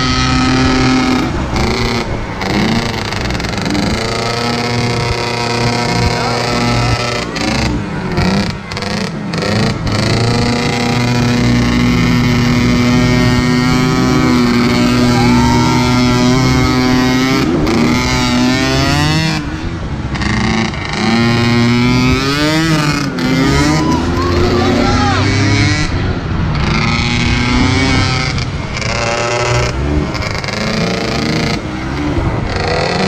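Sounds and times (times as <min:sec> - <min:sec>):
atv engine revving: 0:00.0 - 0:33.0.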